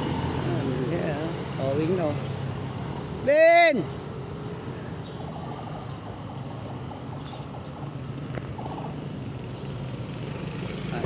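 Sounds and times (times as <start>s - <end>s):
traffic hum: 0.0s - 11.0s.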